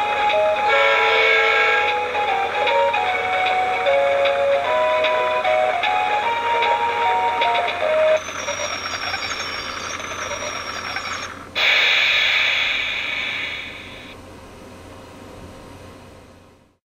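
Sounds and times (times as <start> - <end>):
toy electronic melody: 0.0 - 11.5
toy motor and gears whirring: 8.2 - 14.1.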